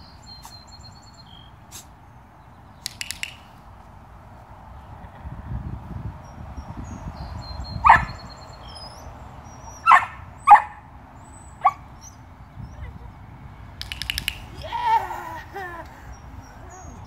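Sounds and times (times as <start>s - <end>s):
puppy barking: 7.9s - 8.1s, 9.8s - 10.8s.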